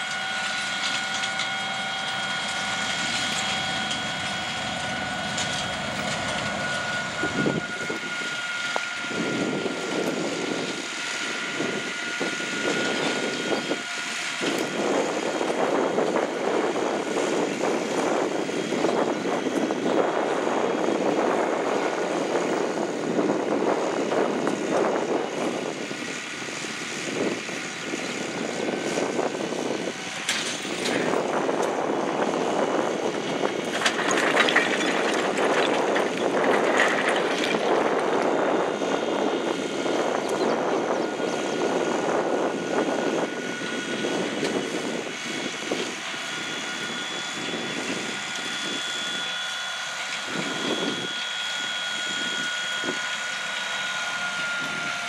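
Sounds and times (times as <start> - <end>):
tractor diesel engine running: 0.0 - 55.0
rock picker clattering: 33.6 - 38.1.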